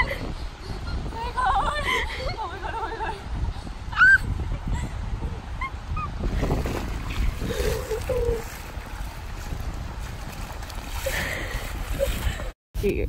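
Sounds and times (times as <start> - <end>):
wind buffeting microphone: 0.0 - 13.0
splashing in shallow water: 6.2 - 12.5.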